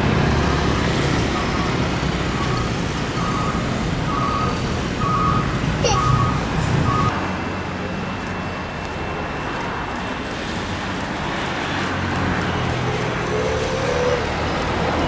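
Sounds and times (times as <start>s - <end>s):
jet engines rushing: 0.0s - 15.0s.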